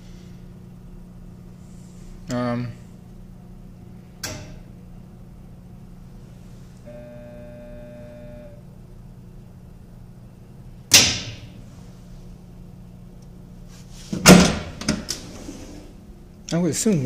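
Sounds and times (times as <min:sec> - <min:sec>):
dishwasher electrical buzz: 0:06.3 - 0:08.8.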